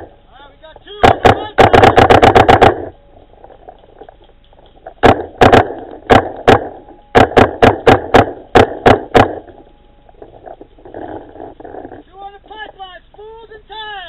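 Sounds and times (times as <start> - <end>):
paintball marker shots: 1.0 - 3.0, 4.9 - 9.6.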